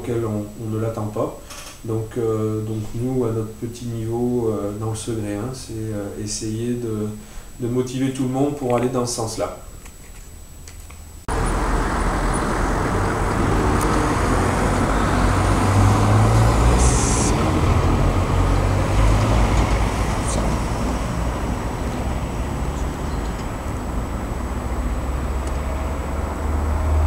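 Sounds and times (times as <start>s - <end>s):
road traffic rumble: 11.2s - 27.0s.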